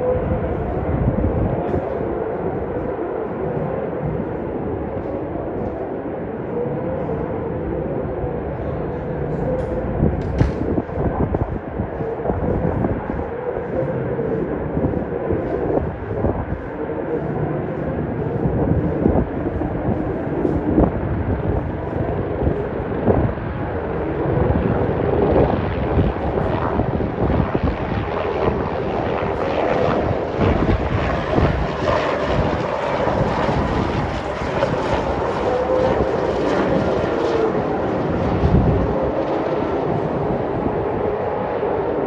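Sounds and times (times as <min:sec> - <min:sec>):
helicopter rotor blades chopping: 0:08.4 - 0:42.0.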